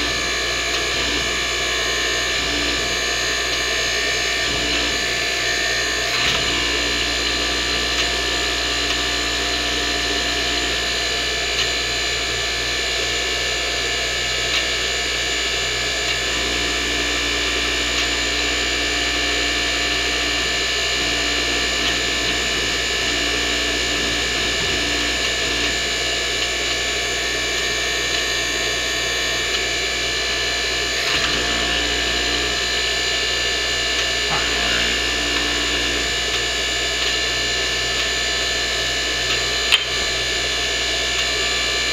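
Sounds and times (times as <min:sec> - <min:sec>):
hydraulic pump running: 0:00.0 - 0:41.9
low hum: 0:16.1 - 0:32.9, 0:34.1 - 0:36.3.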